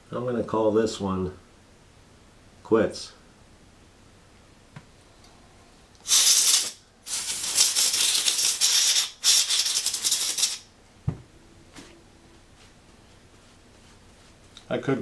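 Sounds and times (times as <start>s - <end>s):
air hissing through compensator: 6.0s - 10.6s.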